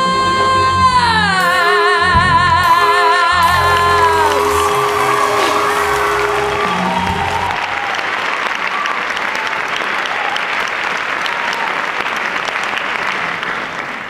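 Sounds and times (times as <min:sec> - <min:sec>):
song final note: 0:00.0 - 0:08.0
audience applauding: 0:01.4 - 0:14.0.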